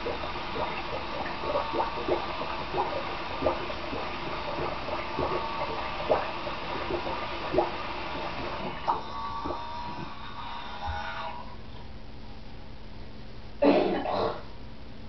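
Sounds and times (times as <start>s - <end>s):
water running into sink: 0.0s - 10.9s.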